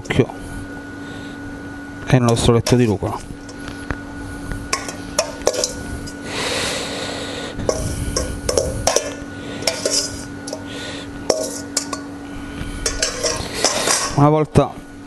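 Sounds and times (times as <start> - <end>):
faint steady hum: 0.0 - 15.0
metal spoon clinking on steel bowl: 4.8 - 5.8, 8.5 - 10.7, 11.3 - 12.1, 12.8 - 14.2.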